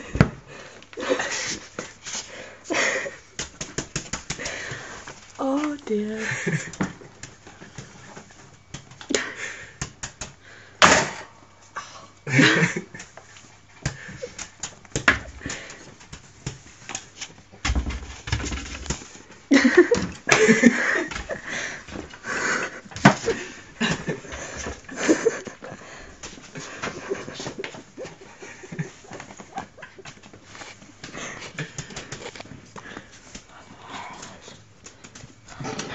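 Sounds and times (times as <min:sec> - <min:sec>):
ferret scrabbling: 0:13.8 - 0:19.2.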